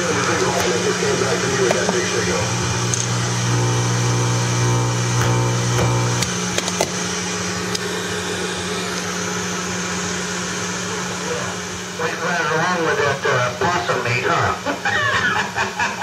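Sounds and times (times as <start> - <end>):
radio static: 0.0 - 6.2, 12.0 - 14.7
radio buzzing hum: 0.0 - 7.0, 10.8 - 14.7.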